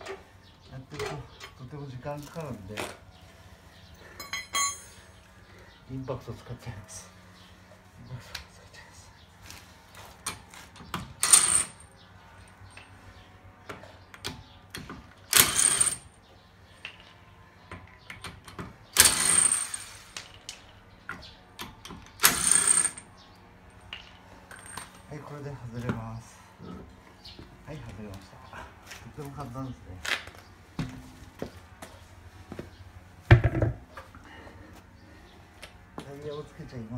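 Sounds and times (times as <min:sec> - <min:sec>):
impact wrench hammering: 0:19.0 - 0:19.8.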